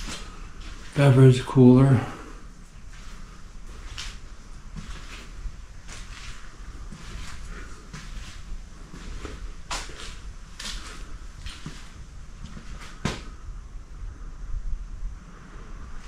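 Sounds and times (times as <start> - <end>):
knocks and scuffs of movement: 0.0 - 1.3, 2.5 - 13.4
low steady rumble: 0.0 - 16.0.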